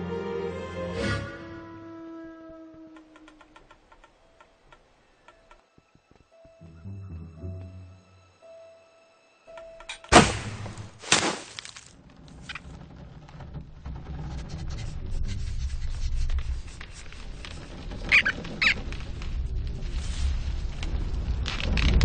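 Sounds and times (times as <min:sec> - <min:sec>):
sharp crack: 0:09.9 - 0:12.0
short high squeaks: 0:17.9 - 0:18.9.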